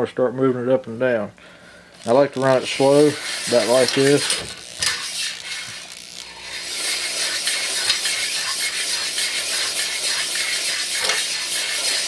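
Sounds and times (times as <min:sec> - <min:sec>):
hone grinding in cylinder: 0:02.0 - 0:12.0.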